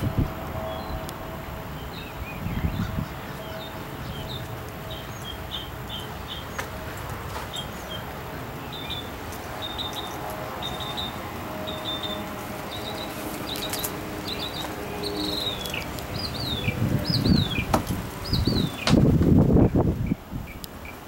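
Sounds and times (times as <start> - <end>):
small birds chirping: 1.8 - 6.8, 7.4 - 19.0.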